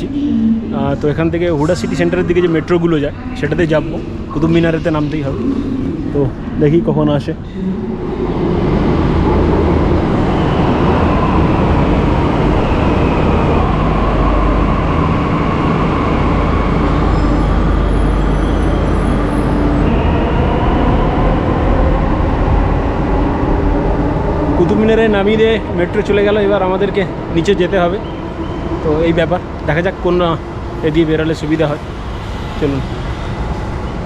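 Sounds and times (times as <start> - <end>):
train rumble with faint whine: 0.0 - 34.0.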